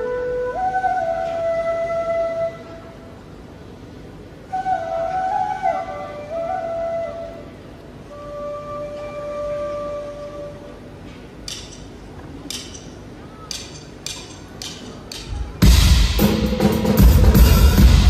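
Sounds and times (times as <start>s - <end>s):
drumstick clicks: 11.4s - 15.5s
band playing loud: 15.2s - 18.0s.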